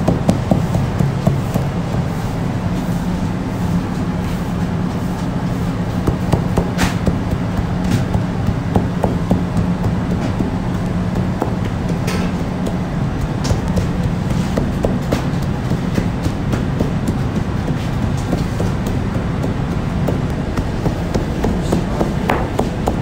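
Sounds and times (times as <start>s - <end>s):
hands tapping and knocking dough: 0.0s - 2.9s, 4.8s - 23.0s
machinery hum: 0.0s - 23.0s.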